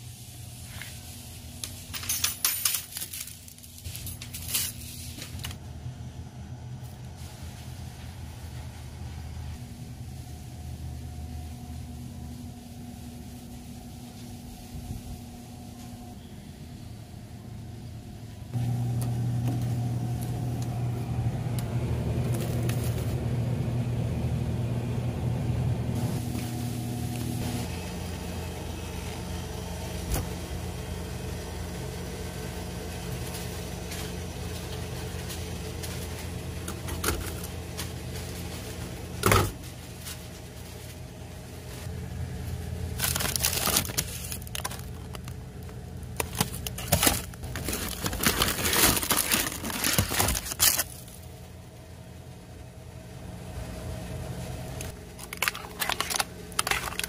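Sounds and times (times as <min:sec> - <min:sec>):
refrigeration hum: 0:00.0 - 0:57.0
plastic packs crinkling: 0:42.5 - 0:51.3, 0:54.9 - 0:57.0.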